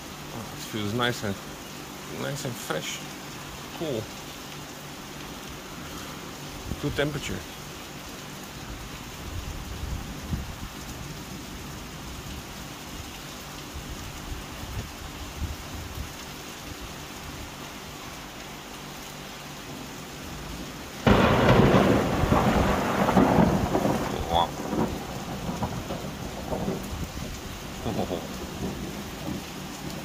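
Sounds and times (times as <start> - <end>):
steady rain falling: 0.0 - 30.0
close thunderclap rumbling: 21.0 - 30.0.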